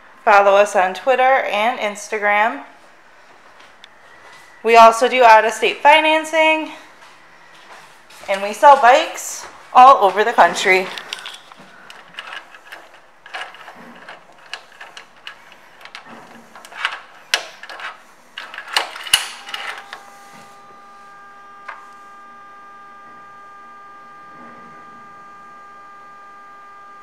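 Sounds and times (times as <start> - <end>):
steady multi-tone hum: 0.0 - 27.0
keys rattling and clicking: 10.1 - 20.0.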